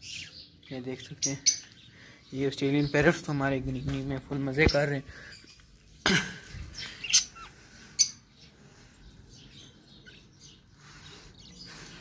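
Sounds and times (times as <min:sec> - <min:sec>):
budgerigars chirping: 0:00.0 - 0:04.0, 0:06.7 - 0:12.0.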